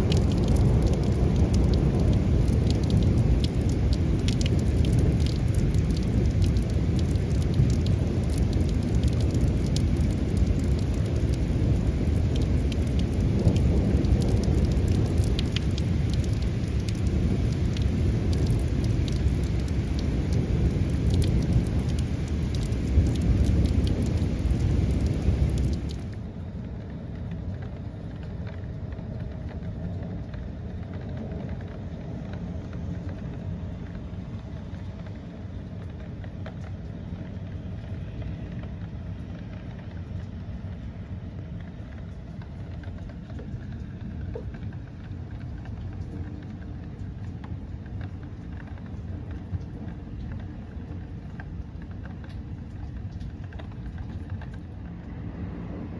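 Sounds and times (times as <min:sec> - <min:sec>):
low rumble of thunder: 0:00.0 - 0:36.3
heavy rain pouring: 0:00.0 - 0:55.9
raindrops ticking: 0:00.0 - 0:55.9.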